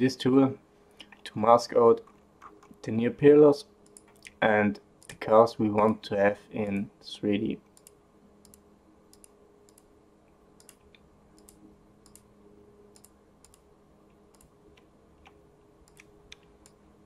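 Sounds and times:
faint low hum: 0.0s - 17.0s
faint mouse clicks: 10.6s - 12.3s, 12.9s - 16.8s.

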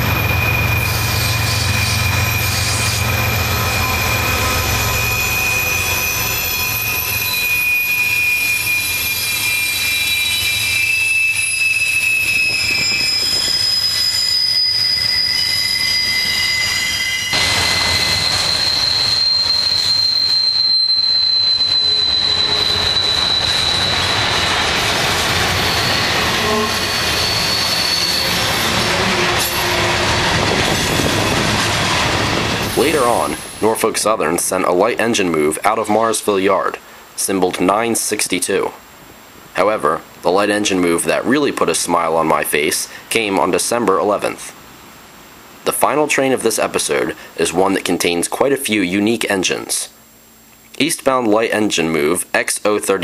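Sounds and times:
train wheels squealing: 0.0s - 33.8s.

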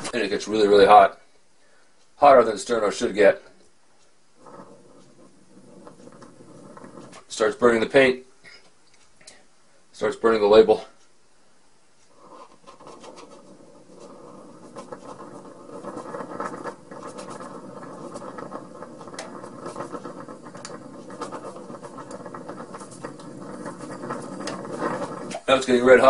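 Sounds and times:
crackles of burning paint: 4.3s - 8.2s, 12.0s - 26.0s
flame rushing: 4.3s - 8.2s, 12.0s - 26.0s.

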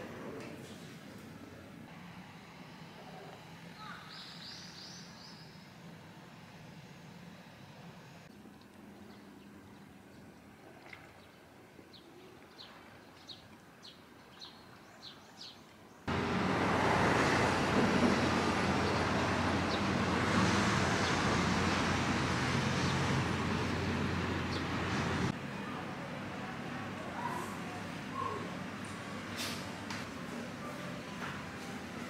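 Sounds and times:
road traffic: 0.0s - 8.5s, 16.1s - 32.0s.

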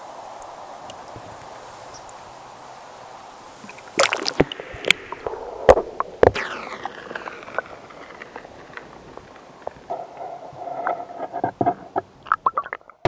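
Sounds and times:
water splashing: 0.0s - 13.0s
water dripping and bubbling: 3.5s - 10.0s, 10.8s - 13.0s.

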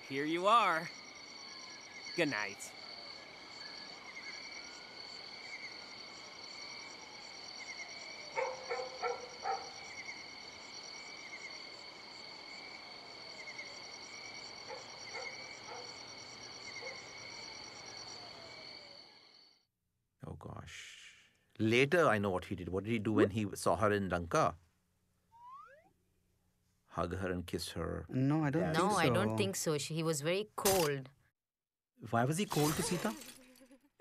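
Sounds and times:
fast pulsing insect trill: 0.0s - 19.6s, 32.3s - 33.9s
loud insect calls: 0.0s - 19.6s
crickets chirping: 0.0s - 19.7s.

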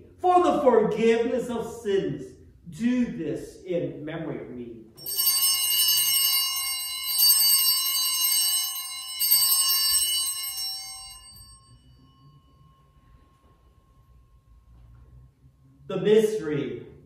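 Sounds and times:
altar bell ringing: 5.0s - 14.8s.

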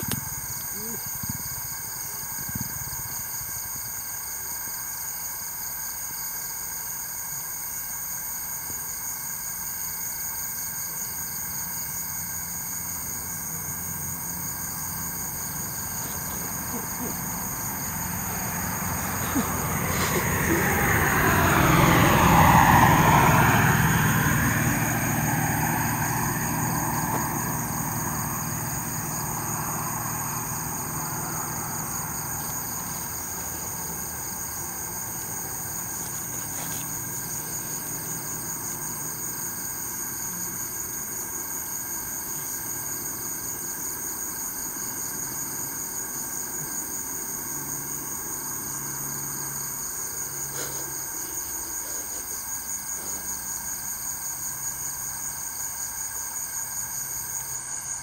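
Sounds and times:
night insects chirping: 0.0s - 58.0s
vehicle passing by: 11.6s - 43.8s, 44.7s - 55.3s.

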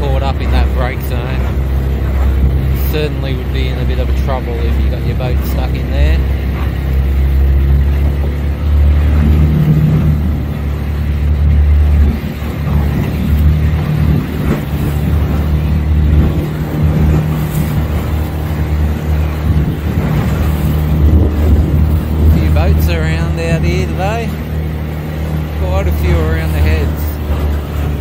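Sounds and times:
motorboat engine humming: 0.0s - 28.0s
rush of noise: 0.0s - 28.0s.

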